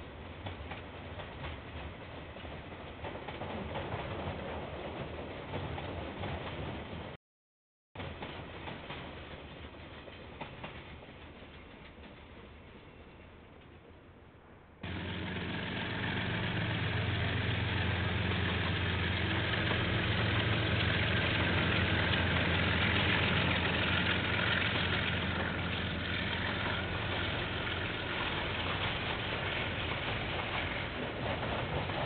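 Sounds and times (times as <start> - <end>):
train rumble: 0.0 - 7.2, 8.0 - 32.0
diesel locomotive engine: 14.8 - 32.0.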